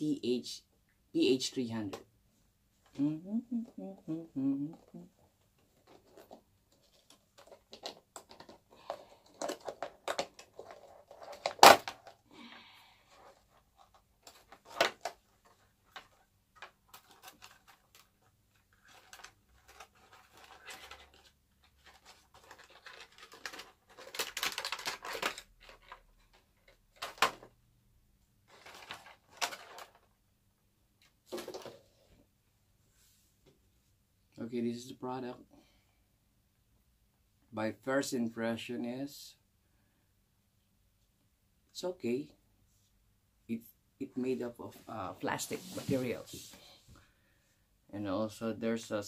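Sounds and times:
plastic packaging crackling: 15.8s - 27.5s.

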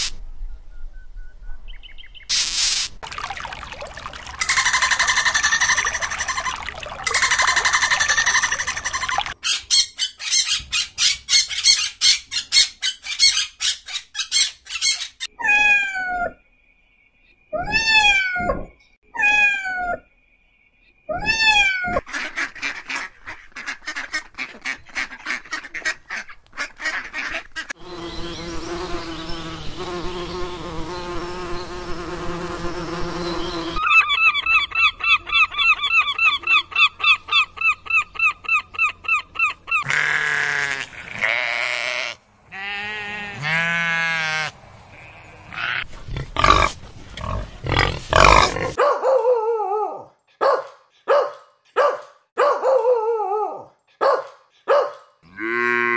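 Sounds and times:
rapid chattering bird calls: 4.4s - 15.2s.

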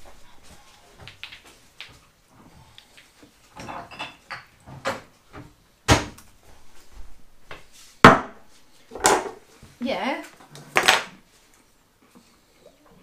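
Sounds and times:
cupboard door opening and shutting: 4.6s - 6.2s
knocks and clatters of objects: 8.0s - 9.4s.

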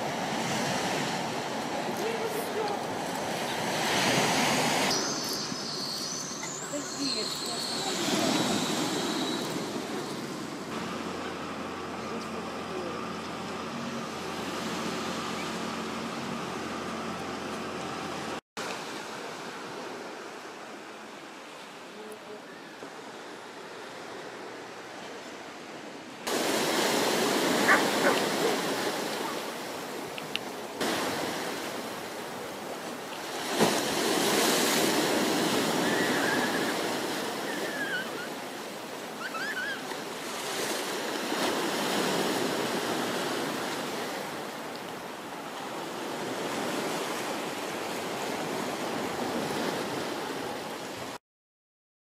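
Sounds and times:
sea surf washing onto beach: 0.0s - 25.0s, 26.0s - 51.2s
high chirps: 4.9s - 9.6s.

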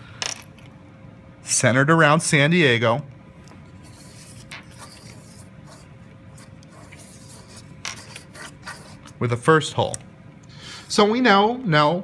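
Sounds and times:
pen scratching on paper: 3.8s - 9.2s
plastic rubbing on paper: 3.8s - 9.2s.

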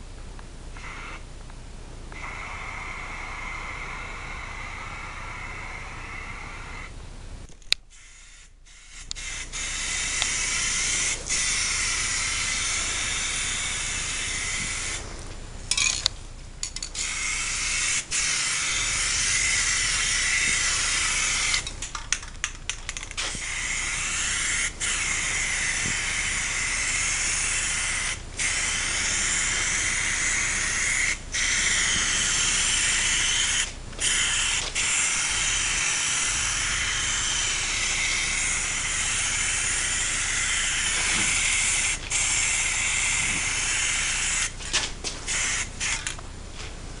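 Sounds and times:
spray paint can hissing: 7.9s - 15.9s, 16.7s - 46.2s.

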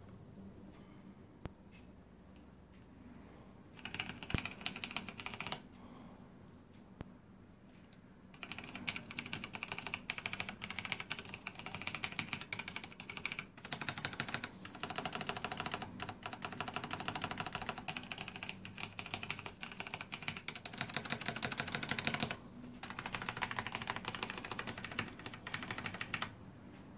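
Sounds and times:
mechanical keyboard typing: 3.8s - 5.7s, 8.4s - 26.4s.

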